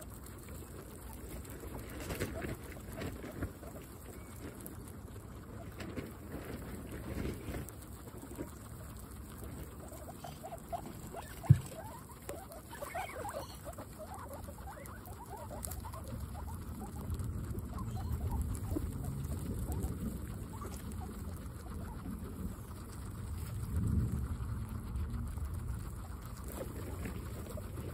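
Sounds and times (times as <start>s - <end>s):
guinea pigs chewing grass: 0.0s - 27.9s.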